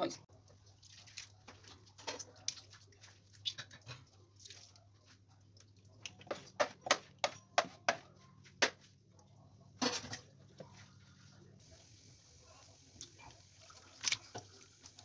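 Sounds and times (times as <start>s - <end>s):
wet squelches and slaps: 0.8s - 3.7s, 13.9s - 14.3s.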